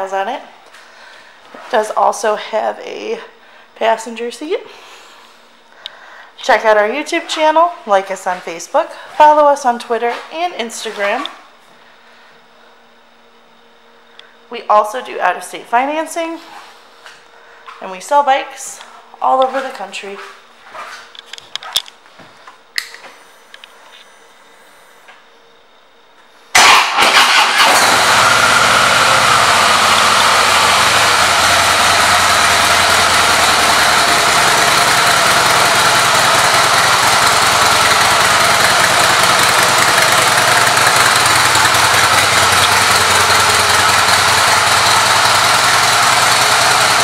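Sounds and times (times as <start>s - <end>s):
motorcycle engine starting and idling: 26.5s - 47.0s.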